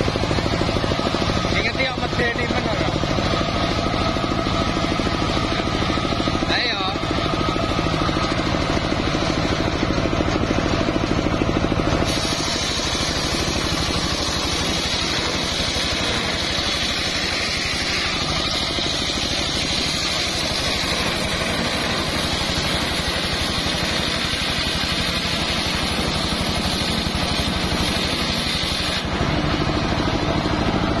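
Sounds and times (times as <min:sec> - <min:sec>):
circular saw engine running: 0:00.0 - 0:31.0
saw blade rasping through log: 0:12.0 - 0:29.1.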